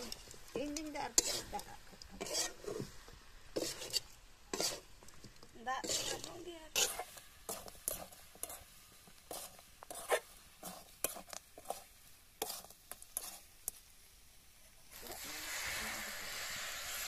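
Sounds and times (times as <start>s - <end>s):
metal spatula scraping pan: 0.0s - 4.9s, 5.8s - 13.5s
water sizzling in hot pan: 0.0s - 17.0s.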